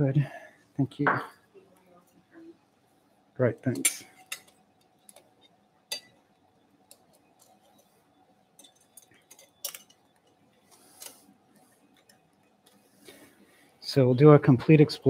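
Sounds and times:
steel instruments clinking: 0:03.6 - 0:06.3, 0:06.9 - 0:11.2.

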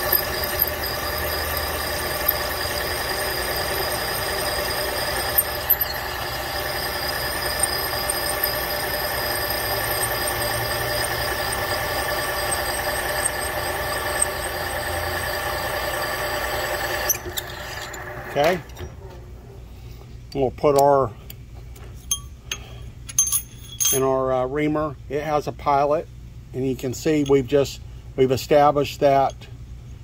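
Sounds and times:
drill spindle whine: 0:00.0 - 0:19.0.

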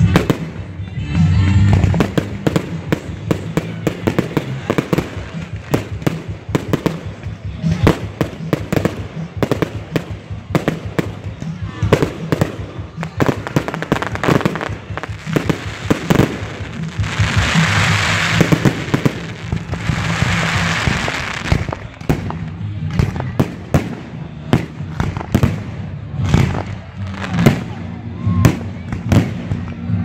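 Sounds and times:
fireworks bangs: 0:01.6 - 0:27.8
fireworks crackling hiss: 0:12.2 - 0:22.6.

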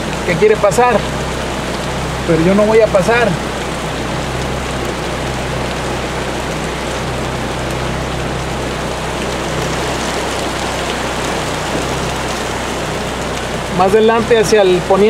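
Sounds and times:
heavy rain on a car: 0:00.0 - 0:15.0
steady low hum: 0:00.0 - 0:15.0.

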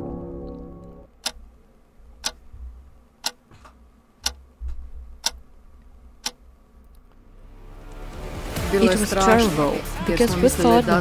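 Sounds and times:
low steady hum: 0:00.0 - 0:11.0
clock ticking: 0:00.4 - 0:01.5, 0:02.2 - 0:02.6, 0:03.2 - 0:03.5, 0:04.2 - 0:04.6, 0:05.2 - 0:05.5, 0:06.2 - 0:06.4.

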